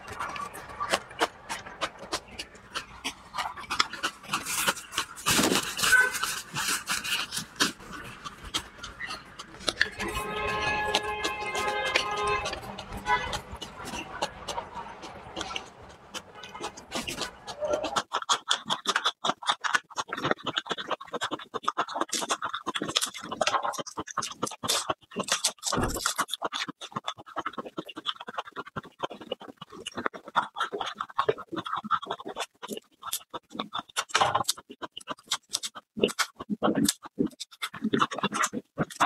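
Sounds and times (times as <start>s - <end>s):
garlic skins crackling: 0.0s - 28.6s.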